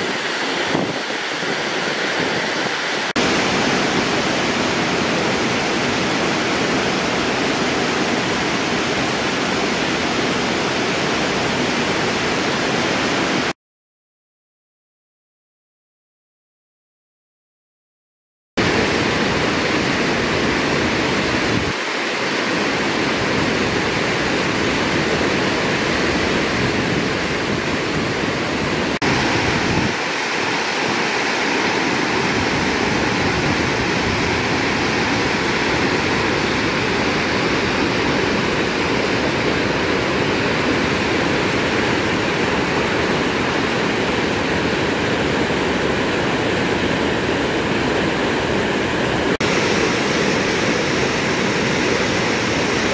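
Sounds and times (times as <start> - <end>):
whitewater rushing over rocks: 0.0 - 13.5, 18.6 - 52.9.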